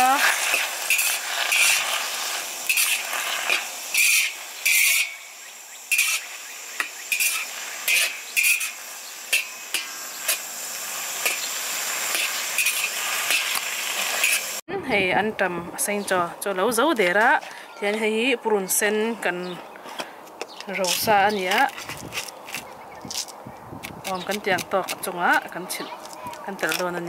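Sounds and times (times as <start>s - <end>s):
metal spatula scraping a wok: 0.0s - 5.3s, 5.9s - 14.6s
frying hiss: 0.0s - 18.3s, 20.7s - 22.6s, 23.9s - 27.0s.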